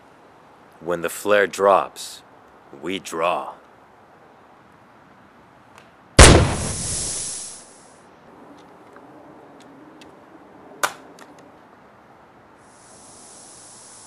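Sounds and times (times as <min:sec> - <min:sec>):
sharp crack: 0:05.8 - 0:07.6, 0:10.8 - 0:11.4
loud blast: 0:06.2 - 0:07.5.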